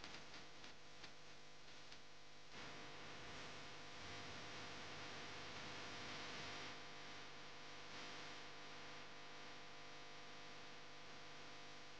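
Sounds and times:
faint mains hum: 0.0 - 11.9.

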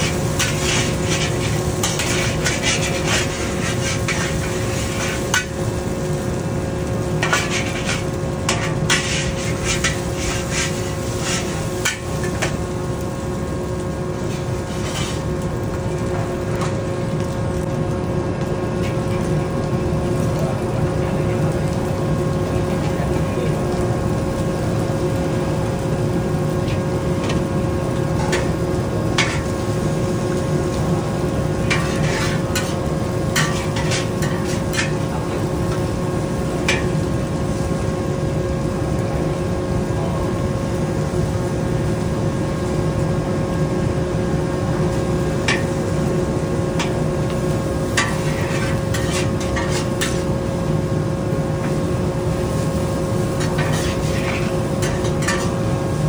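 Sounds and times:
metal ladle scraping a wok: 0.0 - 5.5, 7.2 - 12.4, 14.2 - 15.3, 31.7 - 35.0, 47.9 - 50.3, 53.4 - 55.6
gas burner rushing: 0.0 - 56.0
noodles frying in a wok: 0.0 - 56.0.

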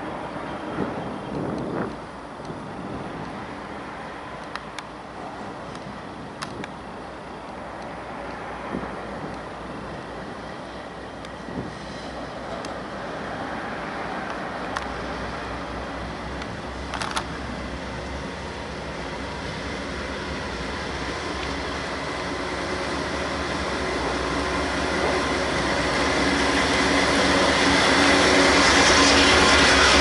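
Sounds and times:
diesel locomotive engine rumble: 0.0 - 30.0.

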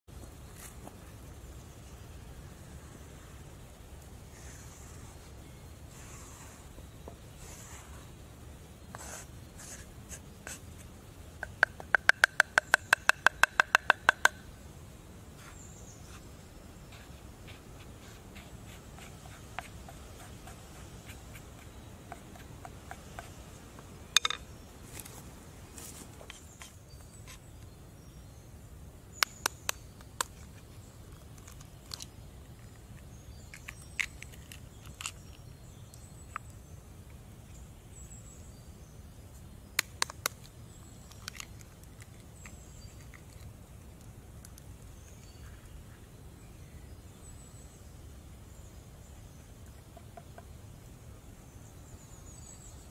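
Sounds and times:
utensils tapping and scraping: 24.2 - 24.4.

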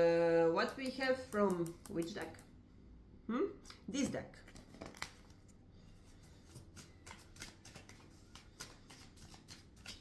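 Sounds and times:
cards being shuffled: 6.3 - 10.0.

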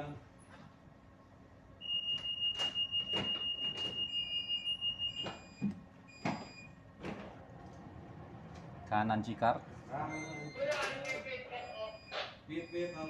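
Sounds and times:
high alarm beep: 1.8 - 6.8, 10.1 - 13.0.

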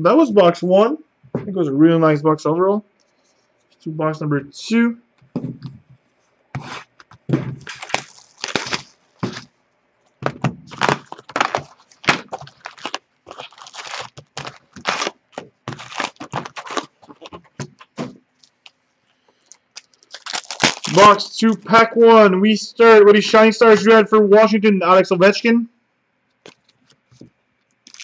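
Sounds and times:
card packs rustling: 6.6 - 9.5, 10.2 - 18.7, 19.3 - 21.2
plastic wrap crackling and tearing: 6.6 - 9.5, 10.2 - 18.8, 19.4 - 21.2, 26.4 - 28.0.

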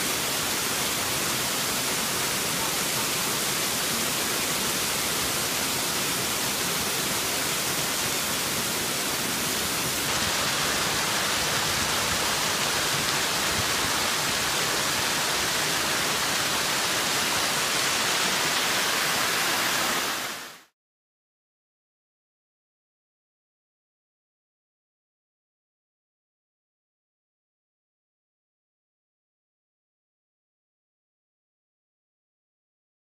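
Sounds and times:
waterfall pouring and splashing: 0.0 - 20.7.

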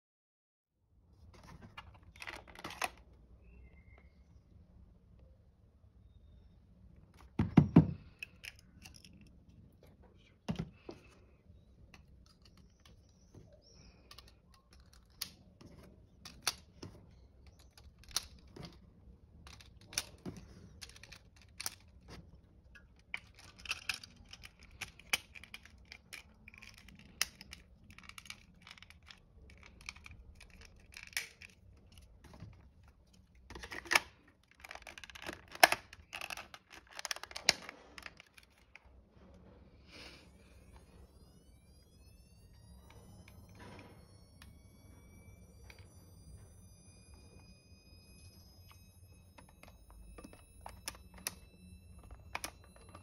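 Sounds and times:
batteries clicking into plastic cartridge: 1.8 - 3.0, 7.2 - 9.4, 14.0 - 15.5, 16.2 - 16.8, 17.4 - 18.8, 19.5 - 22.1, 22.8 - 32.6, 33.5 - 38.8, 49.4 - 53.0.

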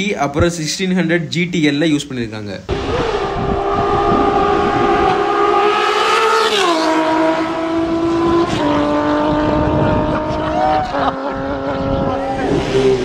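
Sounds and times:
motorcycle engine howling past: 2.7 - 13.0.

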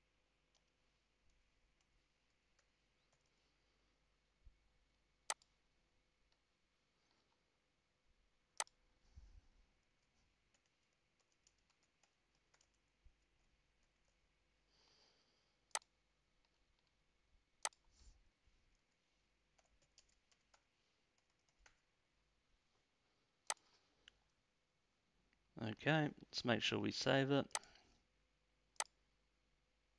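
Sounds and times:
computer mouse clicks: 5.2 - 5.6, 8.6 - 8.8, 10.0 - 14.2, 17.6 - 17.9, 18.7 - 21.9, 23.4 - 24.2
keyboard typing: 9.8 - 14.3, 18.7 - 21.9.

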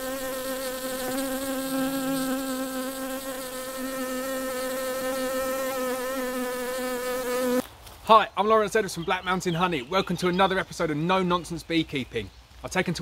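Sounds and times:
bee buzzing: 0.0 - 7.7.

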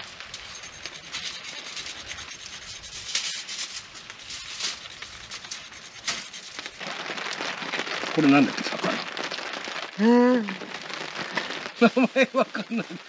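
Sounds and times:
grating on metal grater: 0.2 - 6.8.

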